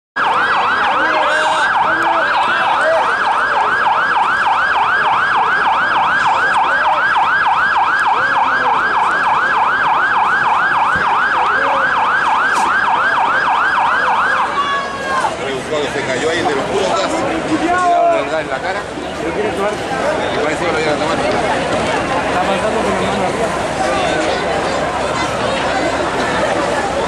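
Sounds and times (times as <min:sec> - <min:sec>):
siren yelping: 0:00.2 - 0:15.2.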